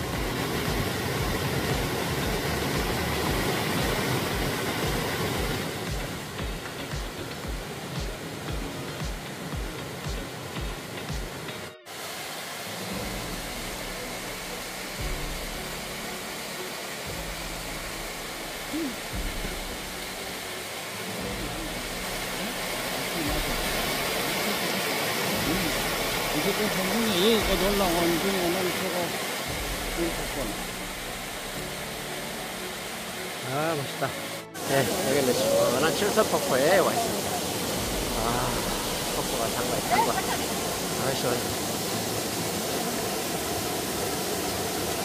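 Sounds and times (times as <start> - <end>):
mountain stream rushing: 0.0 - 45.0
soft low thumps: 29.5 - 32.1.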